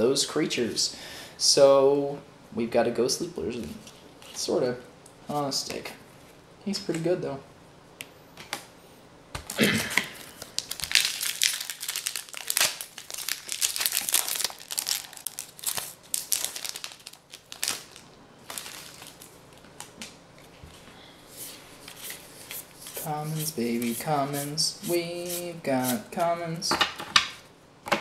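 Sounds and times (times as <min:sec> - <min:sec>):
foil wrapper crinkling: 0:09.5 - 0:20.0.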